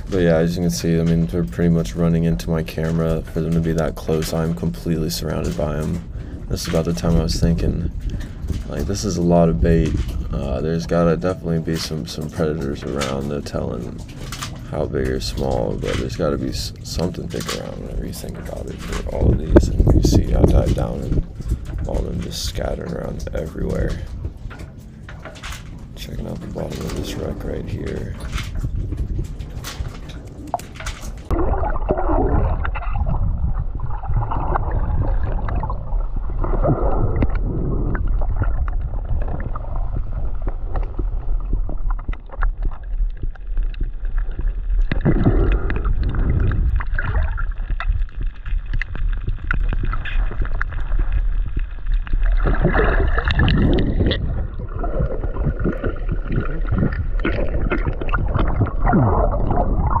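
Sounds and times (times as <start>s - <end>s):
muffled underwater rumble: 0.0s - 60.0s
gurgling surges of water: 29.3s - 60.0s.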